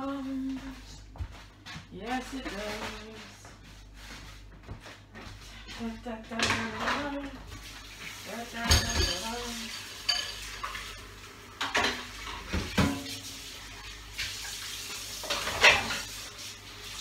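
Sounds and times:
dishes and utensils clinking: 8.6s - 11.0s, 11.6s - 13.2s, 15.2s - 16.2s.

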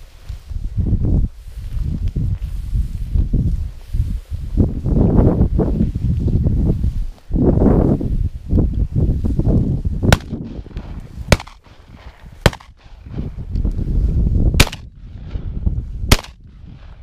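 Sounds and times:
movement through dry grass: 0.0s - 17.0s
wind rumble on microphone: 0.0s - 17.0s
shotgun shots: 10.1s - 10.4s, 11.3s - 11.6s, 12.4s - 13.0s, 14.6s - 14.9s, 16.1s - 16.4s.

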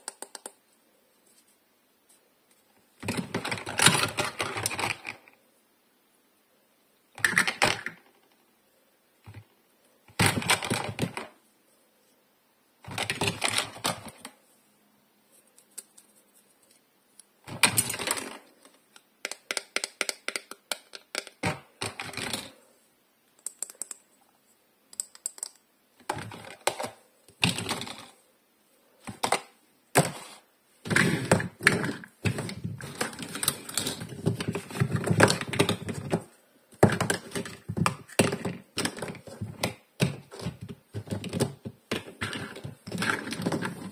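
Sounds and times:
plastic toy pieces clicking: 0.0s - 0.6s, 3.0s - 5.2s, 17.5s - 22.5s, 23.4s - 24.0s, 24.9s - 28.1s.

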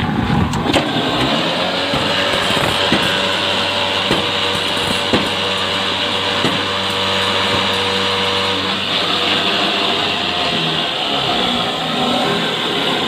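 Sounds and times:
block machine motor hum: 0.5s - 13.0s
sharp metal knocks: 1.2s - 8.8s.

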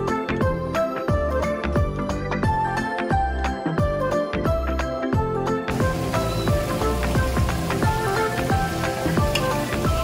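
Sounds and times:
music with quick drum beat: 5.7s - 10.0s.

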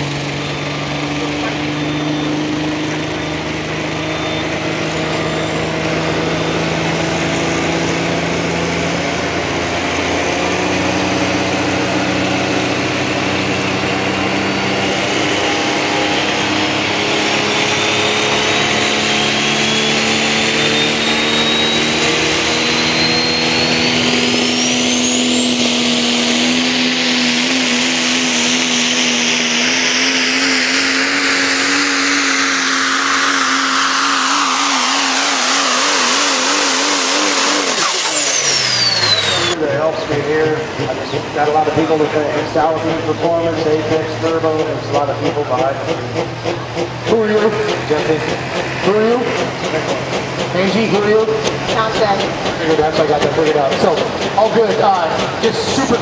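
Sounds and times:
turbocharger whistle: 0.0s - 39.6s
diesel truck engine running loud: 0.0s - 56.0s.

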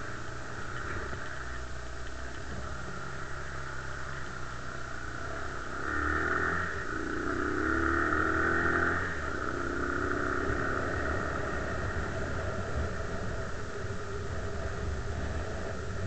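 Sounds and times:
quad bike engine revving: 5.2s - 12.8s.

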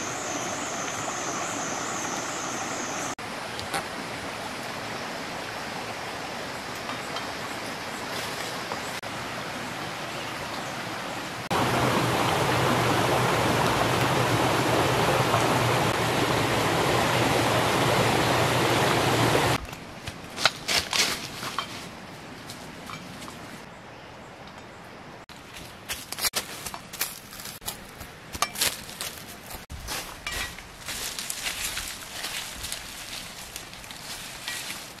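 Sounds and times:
footsteps on dry leaves and twigs: 19.6s - 23.3s, 25.3s - 35.0s.

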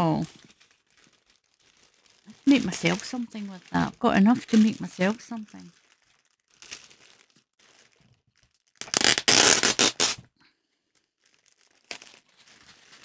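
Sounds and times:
plastic bag crackling: 0.0s - 10.2s, 10.8s - 13.0s
plastic rustling: 0.0s - 13.0s.

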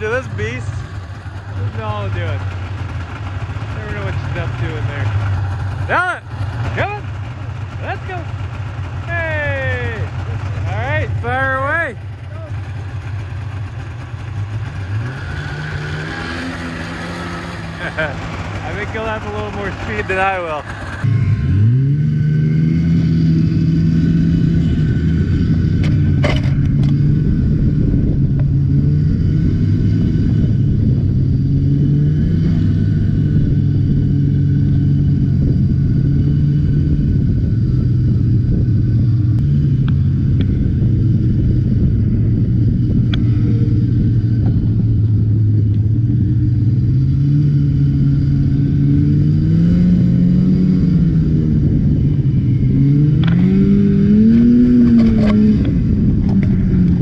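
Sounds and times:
snowmobile engine running: 0.0s - 57.0s.

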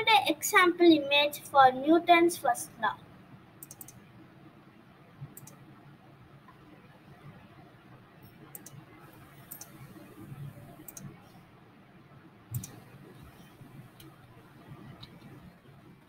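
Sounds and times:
computer mouse clicking: 3.6s - 4.1s, 5.2s - 5.6s, 8.5s - 8.8s, 9.4s - 11.2s, 12.5s - 14.2s.

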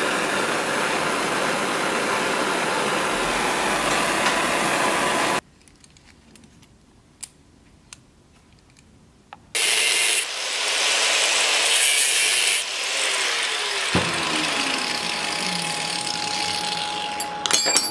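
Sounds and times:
angle grinder grinding metal: 0.0s - 5.4s, 9.6s - 17.9s
welding torch flame hissing: 0.0s - 5.4s, 9.6s - 17.2s
faint clicks of metal links: 5.5s - 9.5s.

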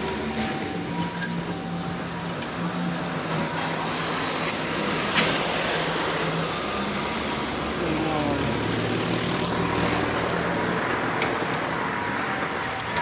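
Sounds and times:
street noise: 0.0s - 13.0s.

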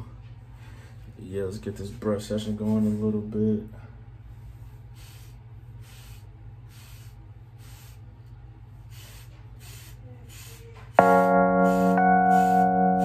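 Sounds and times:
held keyboard chord: 11.0s - 13.0s.

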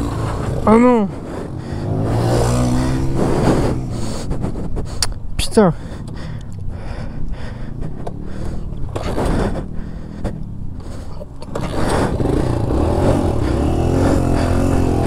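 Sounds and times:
dirt bike engine revving: 0.0s - 4.7s, 8.1s - 15.0s.

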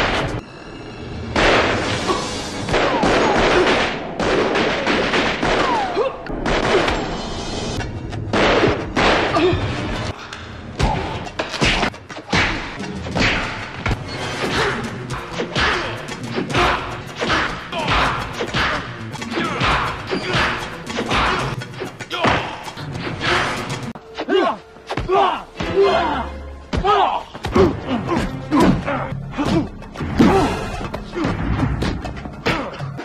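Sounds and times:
background music: 0.0s - 33.0s
fight thuds and blows: 8.2s - 9.9s.

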